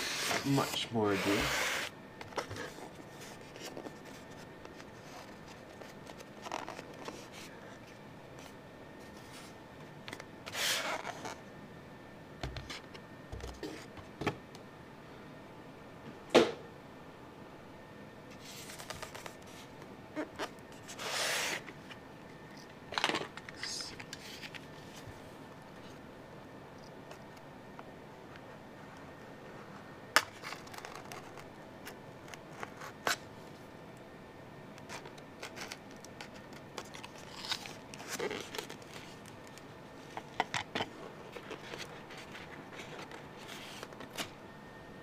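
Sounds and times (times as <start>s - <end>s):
styrofoam and paper rustling: 0.0s - 1.6s.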